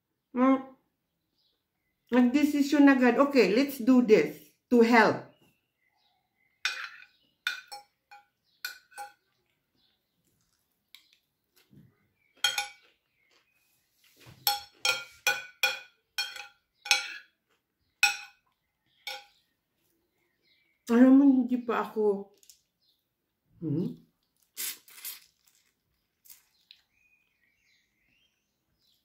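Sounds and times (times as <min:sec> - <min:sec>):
fork and spoon clinking on plate: 0:06.6 - 0:09.4, 0:12.4 - 0:13.0, 0:14.4 - 0:17.4, 0:18.0 - 0:18.4, 0:19.0 - 0:19.4.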